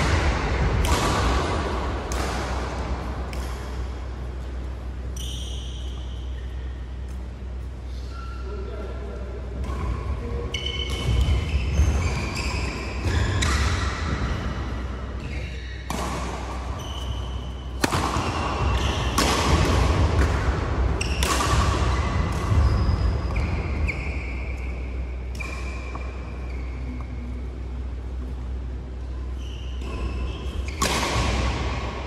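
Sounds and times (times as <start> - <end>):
racket striking shuttlecock: 0.0 - 4.5, 10.8 - 26.2, 29.8 - 32.0
steady low hum: 0.0 - 32.0
short high squeaks: 5.1 - 6.7.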